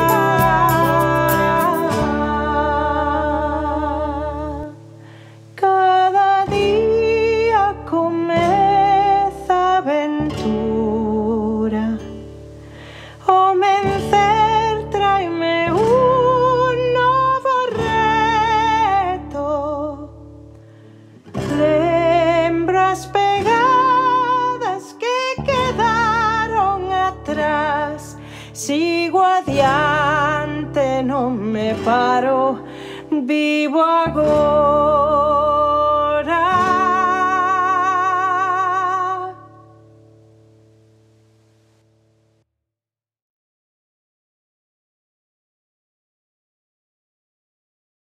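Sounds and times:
instrumental accompaniment: 0.0s - 4.1s
woman singing slow song: 0.0s - 20.5s, 21.3s - 40.2s.

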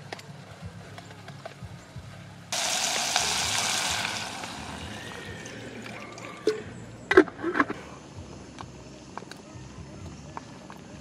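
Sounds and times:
water poured into metal pot: 2.6s - 6.7s.

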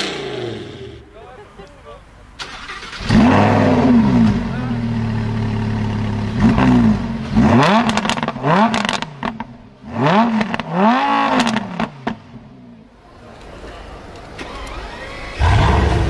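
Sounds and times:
sports car engine idling and revving: 0.0s - 1.1s, 3.0s - 13.0s
exhaust pops and crackles: 7.6s - 9.6s, 10.4s - 12.2s.

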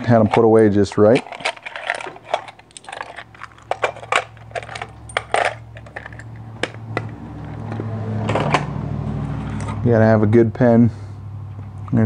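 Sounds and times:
metal tools clinking on wood: 0.0s - 8.7s
low steady hum: 0.0s - 12.0s.

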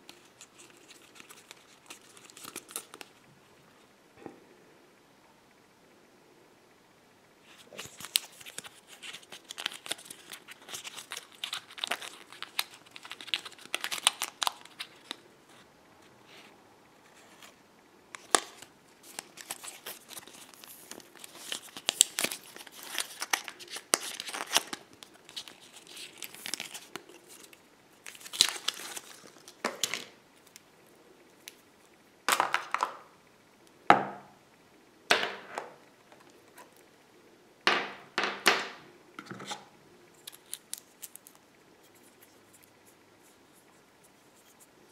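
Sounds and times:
packaging crinkling and tearing: 0.1s - 3.2s, 7.5s - 15.2s, 18.2s - 30.6s, 40.2s - 41.4s.

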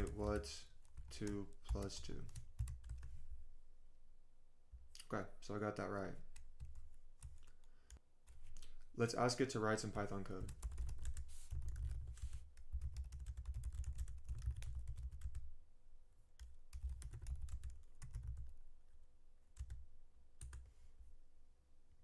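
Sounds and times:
typing on computer keyboard: 0.0s - 3.1s, 10.4s - 15.5s, 16.4s - 18.5s.

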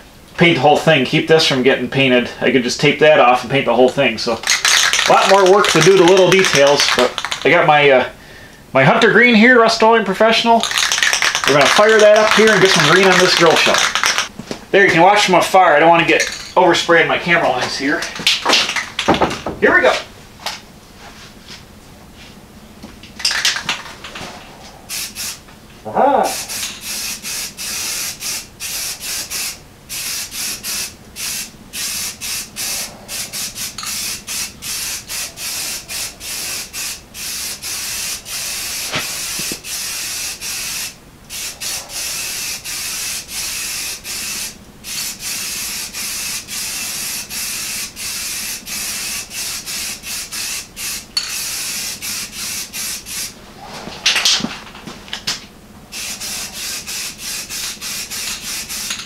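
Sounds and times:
aerosol spray paint hissing: 4.4s - 7.4s, 10.6s - 14.3s, 24.9s - 25.4s, 26.3s - 53.4s, 55.9s - 59.0s.

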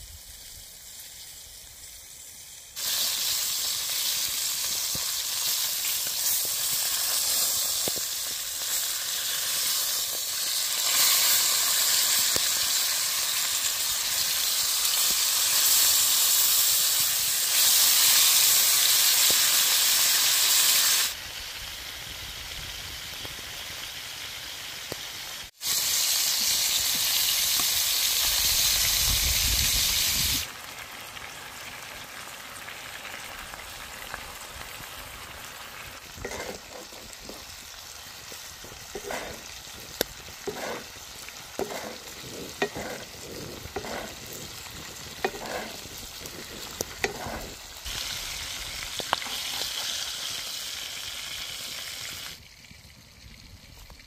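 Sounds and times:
steak sizzling in a skillet: 0.1s - 53.0s
wooden spoon scraping a pan: 36.2s - 37.6s, 38.5s - 47.7s.

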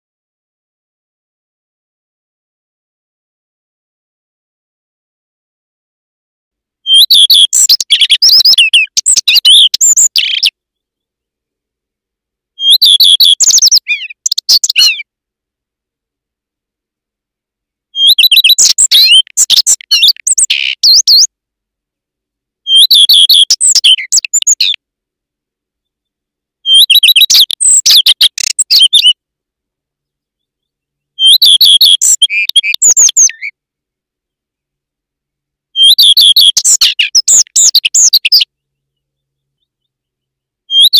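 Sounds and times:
songbird singing: 6.8s - 15.2s, 17.6s - 24.9s, 25.5s - 40.9s.

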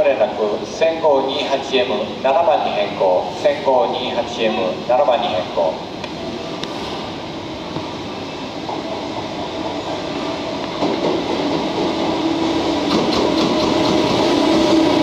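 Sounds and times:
freight train running hum: 0.0s - 15.0s.

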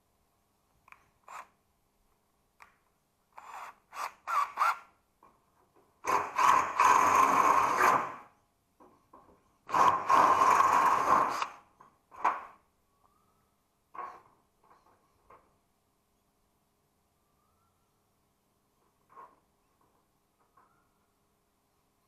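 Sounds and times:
metalworking tool on a panel: 0.8s - 1.6s, 2.6s - 13.2s, 13.8s - 15.7s.

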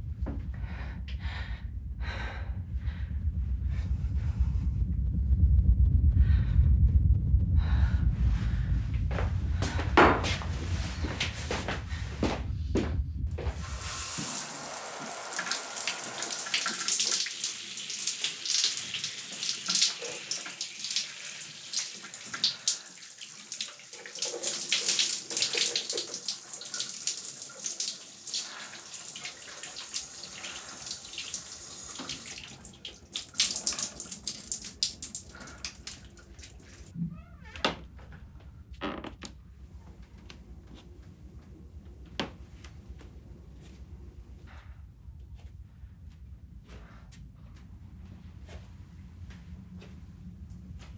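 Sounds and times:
shower water spraying: 13.4s - 36.9s.

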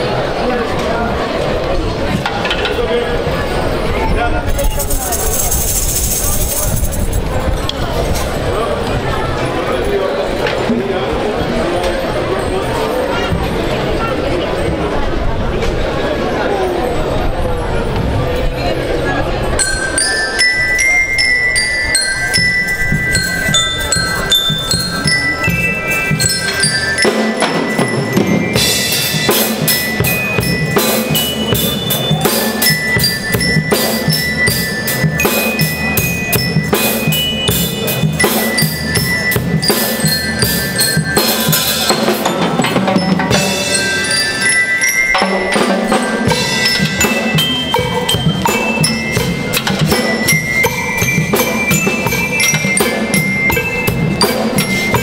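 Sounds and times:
glockenspiel melody: 16.6s - 55.0s
drum kit: 21.9s - 55.0s
snare drums: 24.6s - 44.2s, 45.2s - 55.0s.

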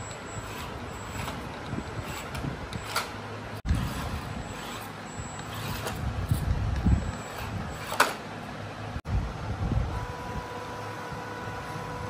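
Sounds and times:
electric motor and gearbox surging: 0.0s - 8.4s
steady motor whine: 0.0s - 12.0s.

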